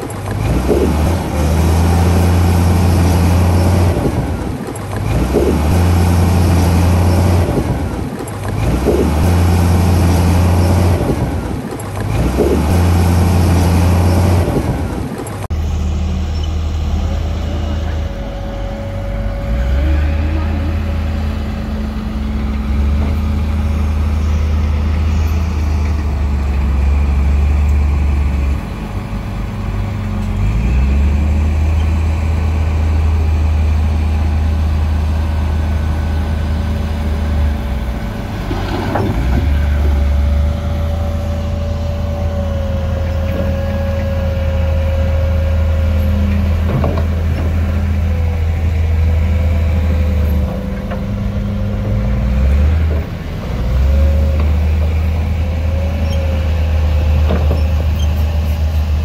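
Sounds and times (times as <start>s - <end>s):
heavy diesel engine droning: 0.0s - 59.0s.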